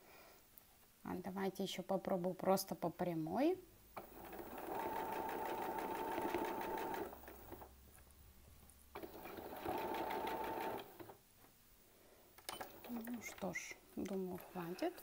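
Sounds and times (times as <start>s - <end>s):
electric sewing machine stitching: 4.0s - 7.7s, 9.0s - 11.2s.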